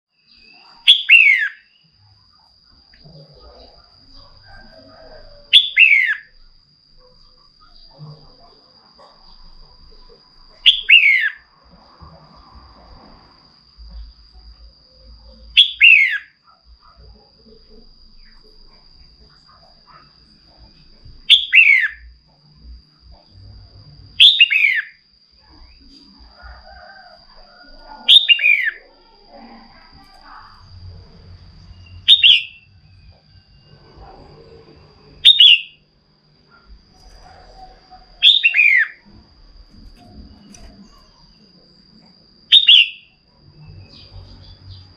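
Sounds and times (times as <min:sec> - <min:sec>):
faint steady high tone: 0:13.8 - 0:44.9.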